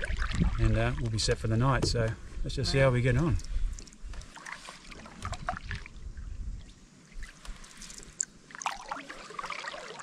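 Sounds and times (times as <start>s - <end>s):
small splashes and drips: 0.0s - 1.4s, 3.3s - 6.0s, 6.6s - 10.0s
paddle stroking through water: 4.1s - 5.8s.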